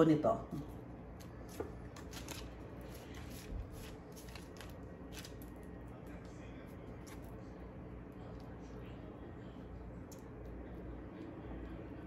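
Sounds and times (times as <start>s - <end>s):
wax paper rustling: 0.7s - 8.7s.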